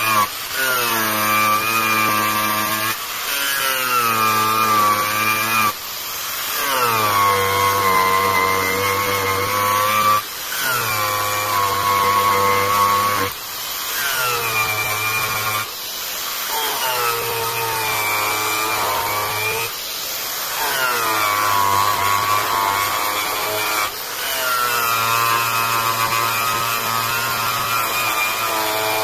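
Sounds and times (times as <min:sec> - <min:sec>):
angle grinder cutting wood: 0:00.0 - 0:29.0.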